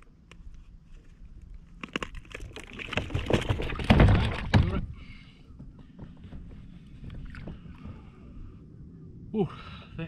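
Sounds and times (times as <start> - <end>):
fish thumping on plastic kayak: 1.8 - 4.8.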